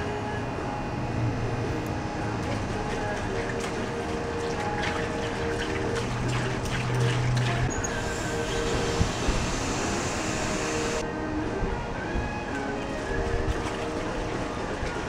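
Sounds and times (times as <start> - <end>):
short splashy glugs: 2.4 - 7.7.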